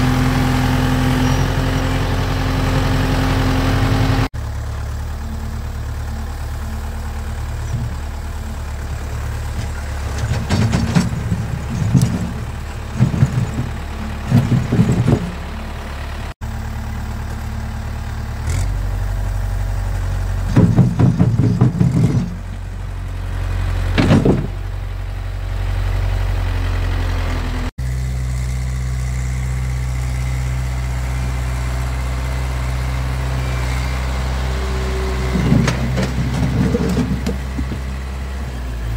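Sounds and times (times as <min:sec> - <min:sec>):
tractor engine running: 0:00.0 - 0:38.9
bucket scraping on concrete: 0:35.3 - 0:37.7.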